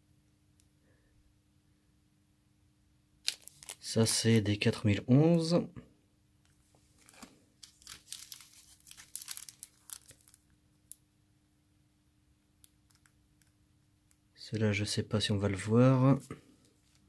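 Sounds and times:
plastic bags crinkling: 0:03.2 - 0:04.4, 0:07.0 - 0:10.5.

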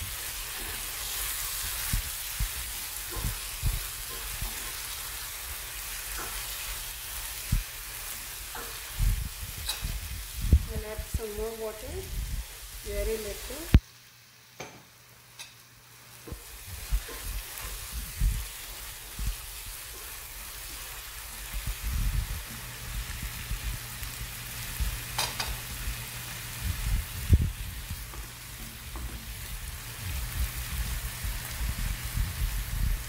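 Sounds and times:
masala sizzling in a pan: 0:00.0 - 0:33.0
spatula scraping a pan: 0:02.7 - 0:05.2.

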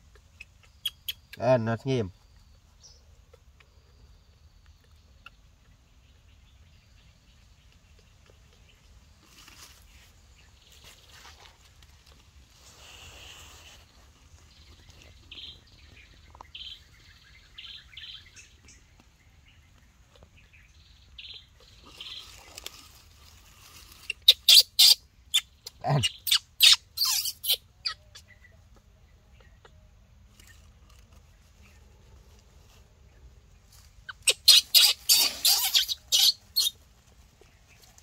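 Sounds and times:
baby monkey squeaking: 0:00.4 - 0:01.4, 0:24.0 - 0:28.4, 0:34.1 - 0:36.8
baby monkey shrill cries: 0:24.2 - 0:28.2, 0:34.1 - 0:36.8.

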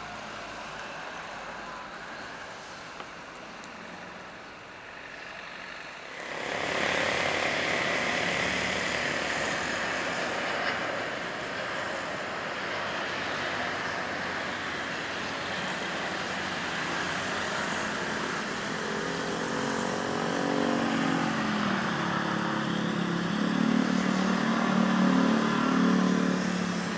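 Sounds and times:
jet roar with high whine: 0:00.0 - 0:26.9
jet airliner rushing: 0:06.1 - 0:26.9.

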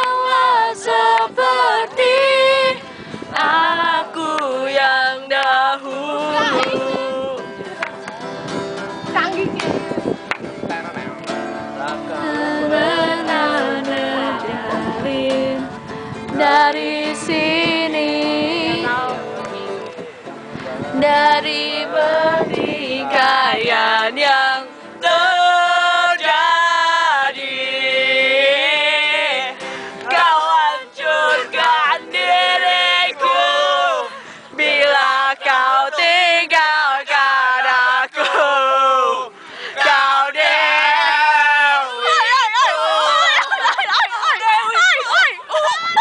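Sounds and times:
group singing a pop song: 0:00.0 - 0:07.8, 0:11.8 - 0:46.0
strummed acoustic guitar: 0:00.0 - 0:36.7.

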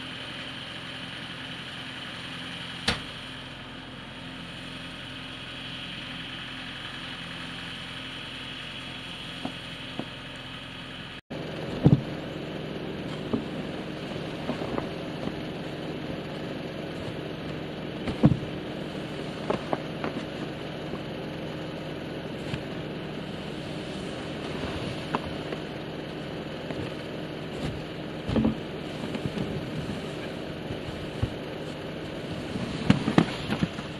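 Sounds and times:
skid steer engine running: 0:00.0 - 0:33.9
snow shovel scraping metal roof: 0:11.4 - 0:33.9.

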